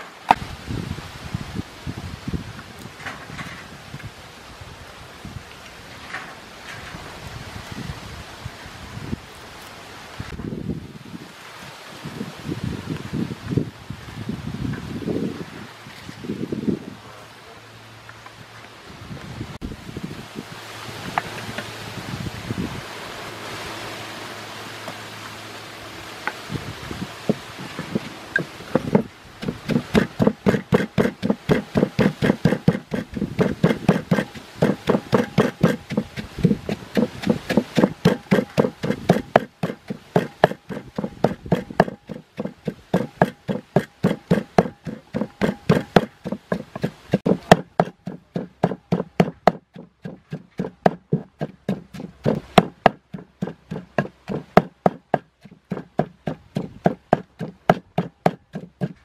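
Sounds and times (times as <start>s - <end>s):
pestle pounding in wooden mortar: 27.2s - 59.0s.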